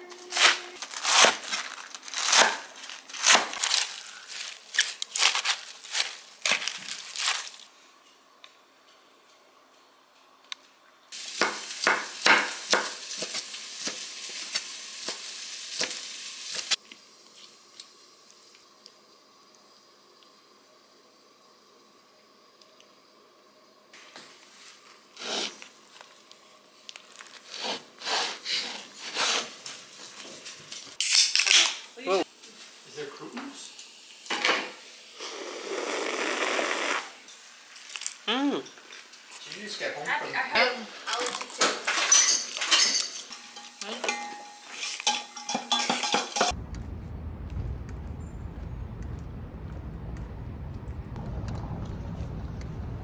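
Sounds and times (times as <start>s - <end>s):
tortilla rustling under hands: 0.8s - 7.7s
cutlery and dishes clinking: 41.6s - 46.5s
low outdoor rumble: 46.6s - 53.0s.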